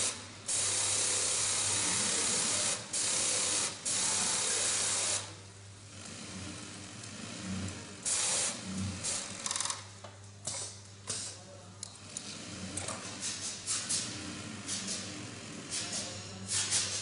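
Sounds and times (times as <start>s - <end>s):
machine humming: 11.9s - 16.5s.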